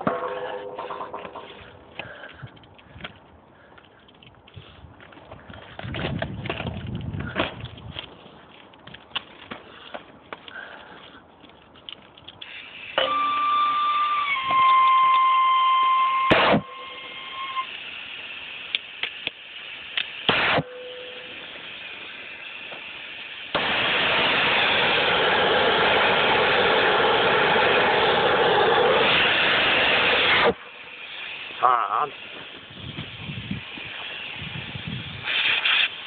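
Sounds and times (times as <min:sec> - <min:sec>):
gas hissing from torch: 0:12.4 - 0:36.0.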